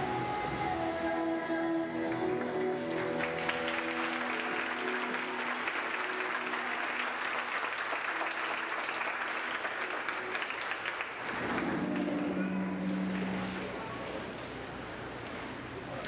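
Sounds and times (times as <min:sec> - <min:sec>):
show music: 0:00.0 - 0:10.4, 0:11.2 - 0:14.5
audience applauding: 0:02.4 - 0:14.8.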